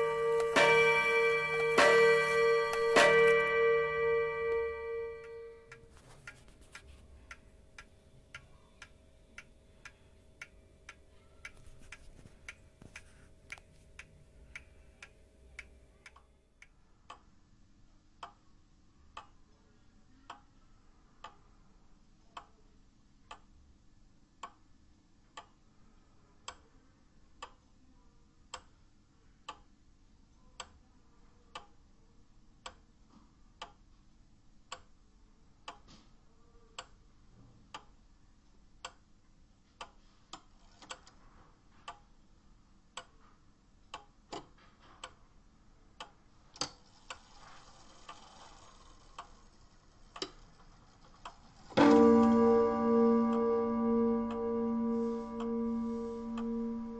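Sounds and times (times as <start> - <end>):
clock ticking: 0.0 - 17.5, 18.1 - 18.5, 19.1 - 19.4, 21.2 - 21.6, 23.2 - 23.6, 24.2 - 25.6, 26.4 - 27.7, 33.6 - 33.9, 35.6 - 36.0, 42.9 - 43.2, 45.9 - 56.9.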